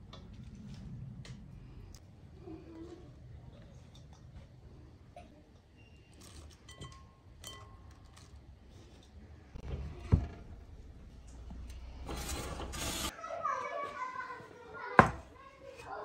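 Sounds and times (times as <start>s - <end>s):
clinks against glass bowl: 6.6s - 8.0s
metal baking tray scraping out: 11.9s - 13.1s.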